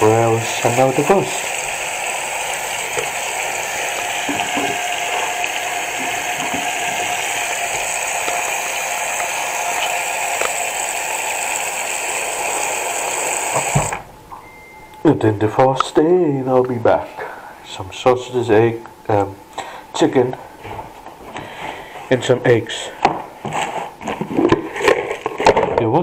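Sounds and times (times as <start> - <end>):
tap water splashing on plastic bags: 2.6 - 10.7, 13.4 - 14.0.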